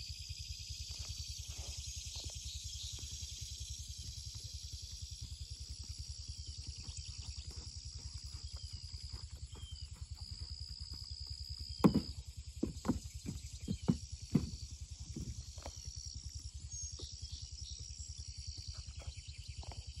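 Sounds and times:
horse hoofbeats on sand: 4.9s - 15.9s
loud sharp thumps: 11.8s - 15.3s.

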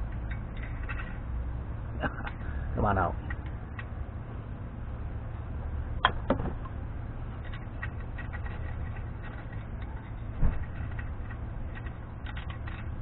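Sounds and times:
metal pick ticking and scraping: 0.0s - 1.3s, 6.0s - 13.0s
steady low hum: 0.0s - 13.0s.

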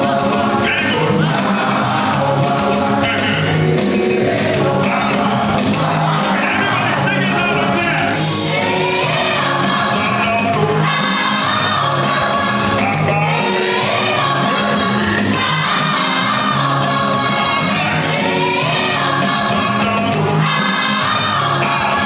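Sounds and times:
man singing lead: 0.0s - 11.0s, 12.5s - 14.6s, 19.4s - 22.0s
band playing gospel music: 0.0s - 22.0s
chorus singing: 0.0s - 22.0s.

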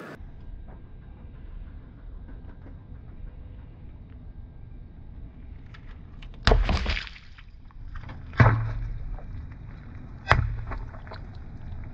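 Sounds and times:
water splashing on asphalt: 6.2s - 11.9s
water balloons popping: 6.3s - 11.9s.

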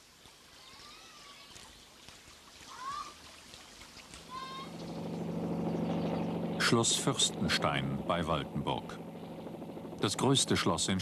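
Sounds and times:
low engine drone: 4.2s - 11.0s
faint animal calls: 4.3s - 6.3s.

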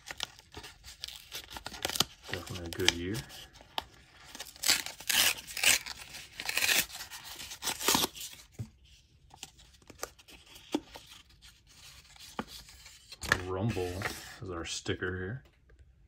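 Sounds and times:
paper wrapper tearing: 0.0s - 3.6s, 4.2s - 8.4s
cards rustling and clicking: 0.0s - 14.4s.

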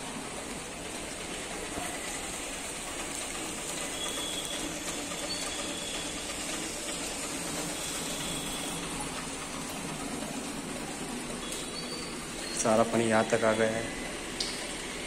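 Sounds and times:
faint high chirps: 11.4s - 12.7s.

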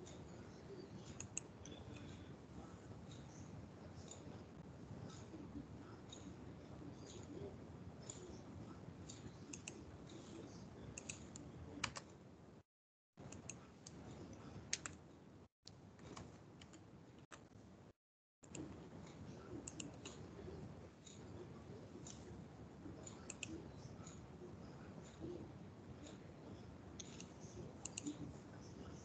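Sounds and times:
keyboard typing: 9.1s - 12.1s, 13.2s - 15.0s, 16.0s - 17.5s, 18.4s - 22.3s.

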